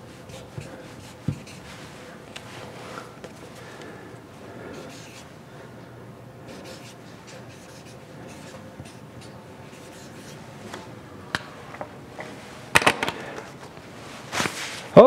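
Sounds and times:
marker scratching on paper: 0.0 - 2.0, 4.7 - 5.3, 6.5 - 10.5.

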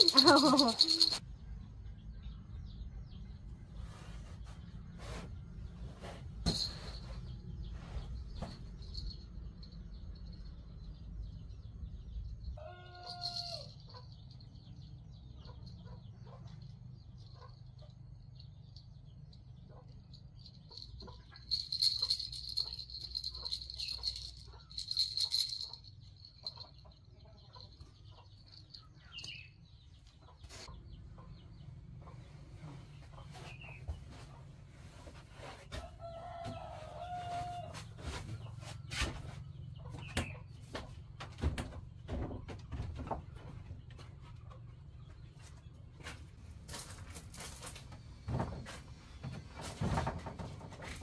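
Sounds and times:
chicken pitched call: 12.6 - 13.7.

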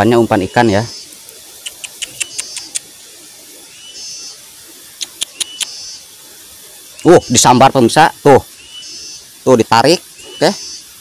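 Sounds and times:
high buzzing chirps: 0.0 - 11.0
small sharp ticks: 1.0 - 3.0, 4.8 - 6.0.

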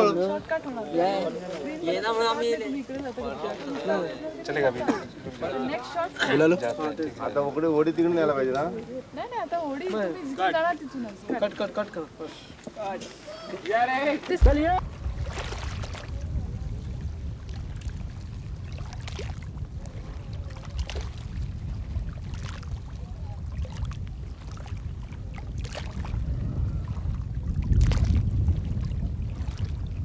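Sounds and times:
paddle strokes splashing water: 12.5 - 30.0
low rumble: 14.4 - 30.0.

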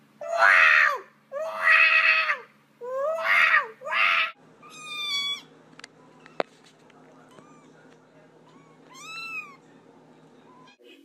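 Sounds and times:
cat yowling: 0.2 - 5.5, 8.5 - 9.6
kittens mewing: 0.2 - 5.5, 8.4 - 9.6.

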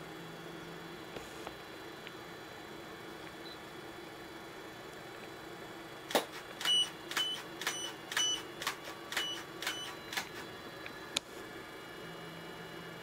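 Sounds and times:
steady low hum: 0.0 - 13.0
camera shutter clicking: 6.1 - 10.4.

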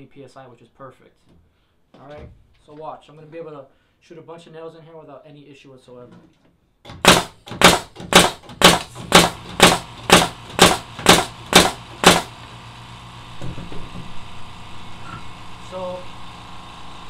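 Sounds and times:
nail gun shots: 6.9 - 12.4.

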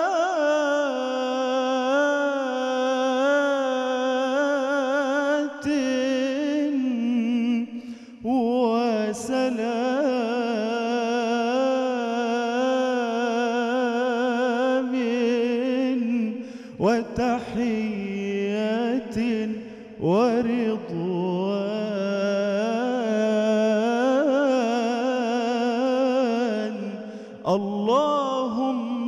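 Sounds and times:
man singing melismatic notes: 0.0 - 29.0
singer breathing: 7.7 - 8.3, 16.3 - 16.8, 19.5 - 20.0, 27.0 - 27.5.

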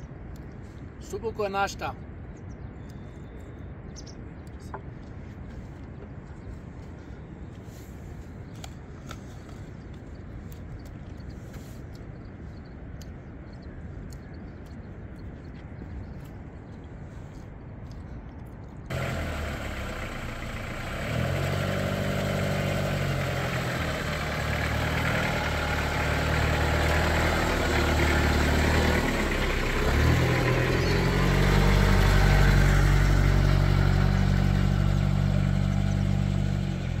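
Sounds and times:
truck engine running: 18.9 - 37.0.

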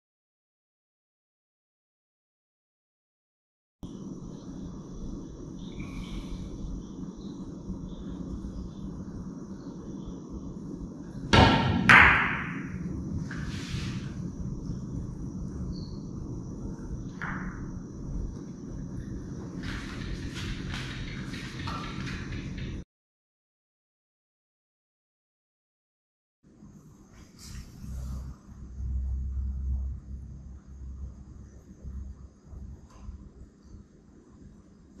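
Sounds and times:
cue tip striking ball: 11.3 - 12.8, 17.2 - 17.6
billiard balls clicking: 19.6 - 22.8.

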